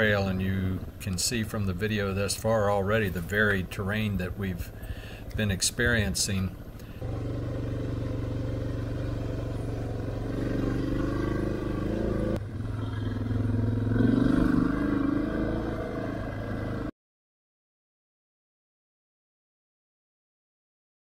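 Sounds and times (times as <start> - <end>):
motorcycle engine accelerating: 7.0 - 16.9.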